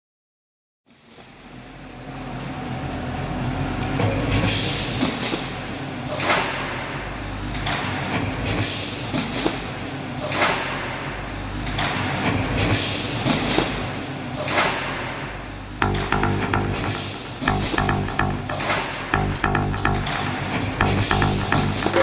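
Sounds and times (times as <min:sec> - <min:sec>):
machine whooshing and clanking: 0:04.0 - 0:10.9
machinery low hum: 0:15.8 - 0:22.0.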